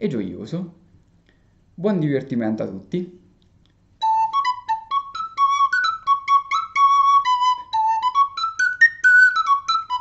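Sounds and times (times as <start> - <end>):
small flute melody: 4.0 - 10.0.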